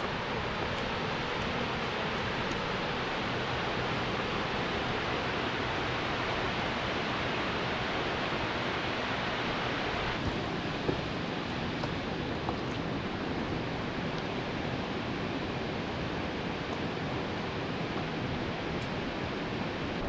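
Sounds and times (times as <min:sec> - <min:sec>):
small knocks: 0:10.2 - 0:13.6.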